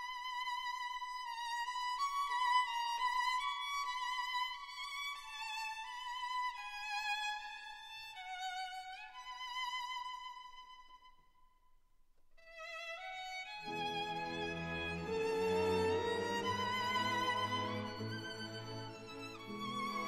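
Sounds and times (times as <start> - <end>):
slow violin melody: 12.4 - 20.0.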